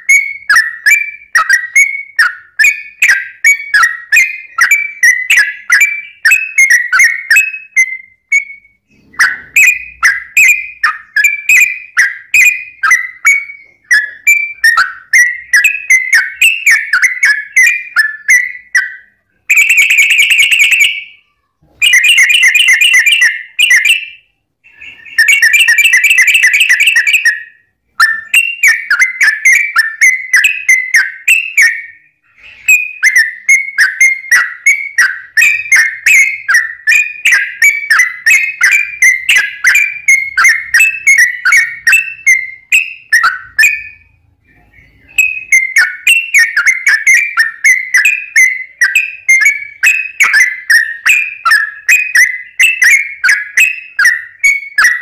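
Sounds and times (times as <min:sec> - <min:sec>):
bird chirping: 0:00.0 - 0:55.0.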